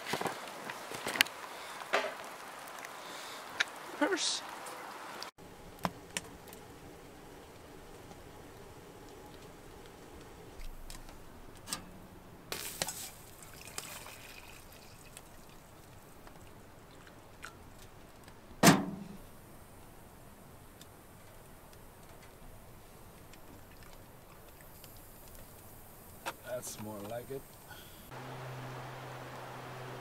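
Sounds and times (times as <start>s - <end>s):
hot drink pouring into metal cup: 12.5s - 16.6s.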